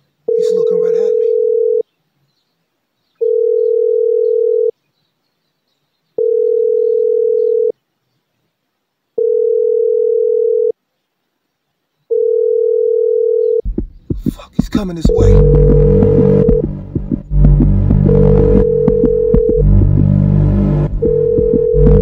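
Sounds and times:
telephone ringback tone: 0:00.3 - 0:01.8, 0:03.2 - 0:04.7, 0:06.2 - 0:07.7, 0:09.2 - 0:10.8, 0:12.1 - 0:13.6, 0:18.1 - 0:19.8, 0:21.0 - 0:22.0.

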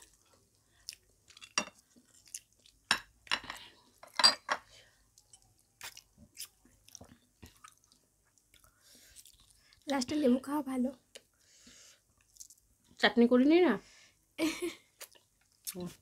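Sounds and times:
chewing and lip smacks: 0:00.1 - 0:02.8, 0:05.1 - 0:09.8.

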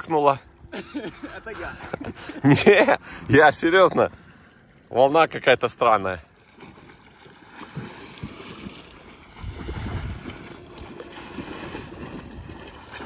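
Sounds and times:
water splashing and lapping: 0:00.0 - 0:13.0
wind rumbling on microphone: 0:09.2 - 0:13.0.

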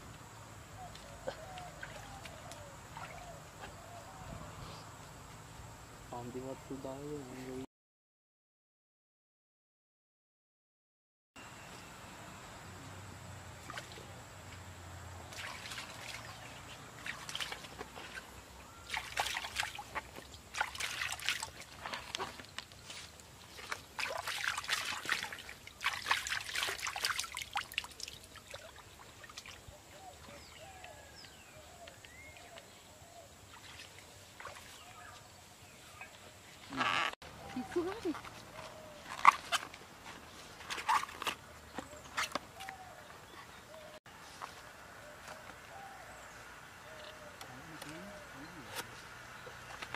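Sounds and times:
water splashing in a stream: 0:01.1 - 0:03.8, 0:13.5 - 0:14.2, 0:15.2 - 0:31.1, 0:33.4 - 0:35.4, 0:40.6 - 0:43.0
water trickling: 0:15.2 - 0:18.2, 0:18.8 - 0:31.1.

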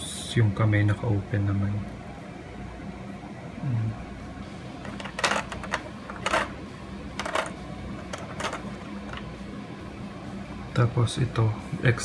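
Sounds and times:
plastic parts clattering on tray: 0:04.8 - 0:06.6, 0:07.2 - 0:09.3.

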